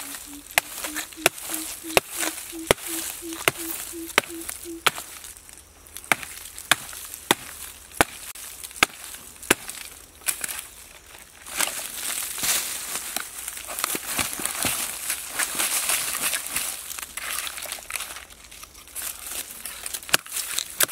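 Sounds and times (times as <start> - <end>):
decayed wood crackling and crunching: 0.0 - 20.9
blade chopping into log: 6.1 - 8.2.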